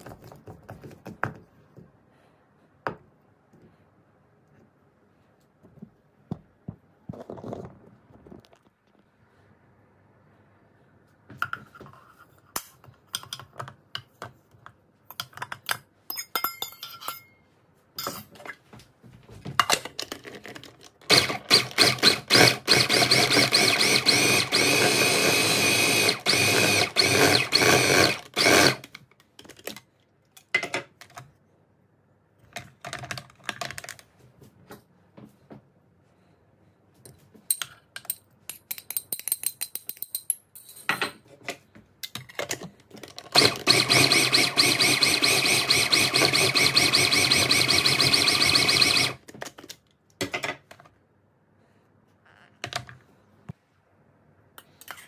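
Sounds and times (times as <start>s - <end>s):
food processor motor running: 21.1s - 28.8s, 43.4s - 49.2s.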